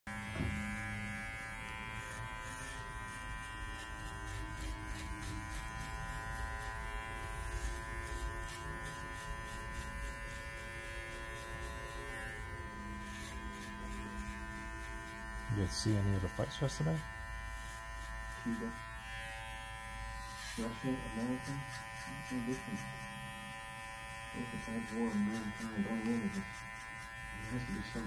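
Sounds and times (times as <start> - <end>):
electric hair clipper buzzing: 0.1 - 28.0
clipper blade ticking through hair: 0.4 - 12.0.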